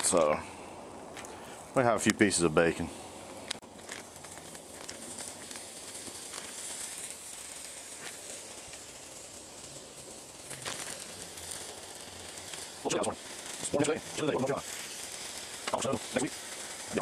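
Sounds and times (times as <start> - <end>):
faint crackles: 0.0 - 17.0
bacon sizzling on griddle: 3.5 - 17.0.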